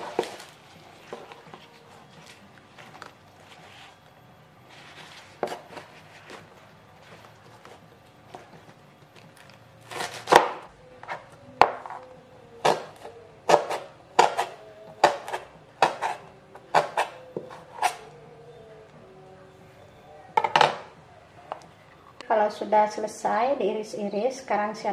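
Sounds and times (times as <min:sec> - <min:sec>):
knife chopping on plastic board: 0:09.9 - 0:10.6, 0:12.6 - 0:18.0.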